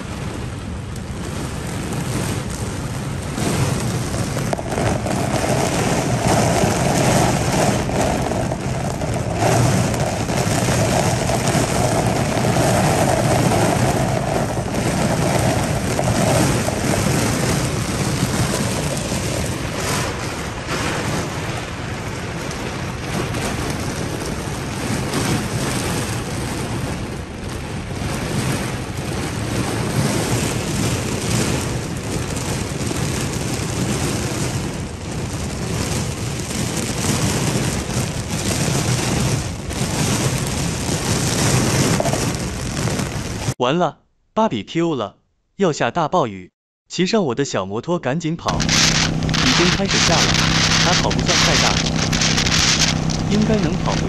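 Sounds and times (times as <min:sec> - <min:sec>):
torrential rain on car roof: 0:00.0 - 0:43.6, 0:48.5 - 0:54.0.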